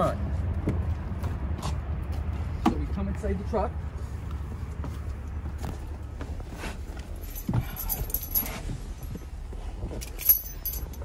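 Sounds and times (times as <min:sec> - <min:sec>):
rustling and knocks in car seat: 0:04.8 - 0:11.0
metal keys jingling: 0:07.1 - 0:09.3, 0:09.9 - 0:11.0.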